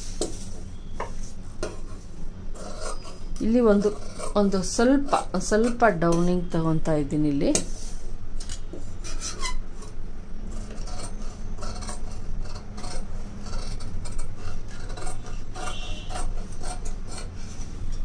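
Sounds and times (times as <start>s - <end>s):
blades rasping along cloth: 2.5s - 5.9s, 10.5s - 17.7s.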